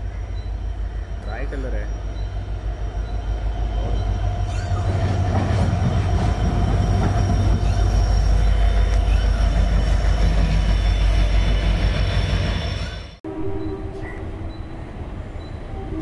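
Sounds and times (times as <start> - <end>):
diesel locomotive engine drone: 0.0 - 16.0
higher hum: 13.2 - 16.0.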